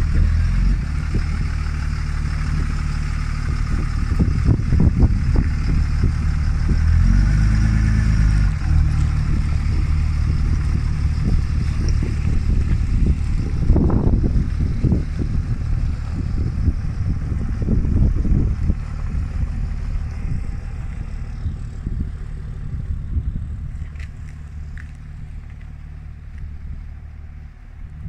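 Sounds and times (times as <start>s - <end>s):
truck engine rumble: 0.0s - 28.0s
crackles: 23.7s - 26.5s.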